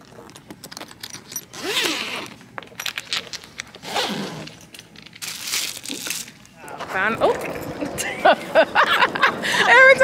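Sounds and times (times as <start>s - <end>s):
zipper clicking: 1.5s - 2.4s, 3.8s - 4.6s.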